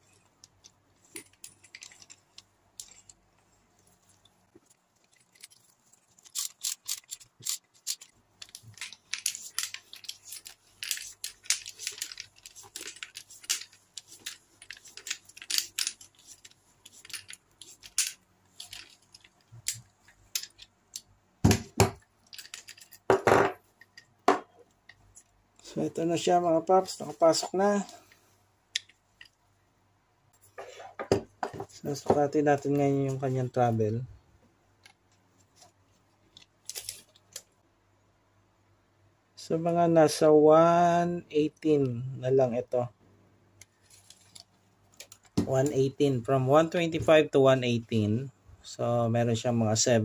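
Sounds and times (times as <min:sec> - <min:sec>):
small clicks and scrapes: 0:00.0 - 0:21.1, 0:43.6 - 0:45.8.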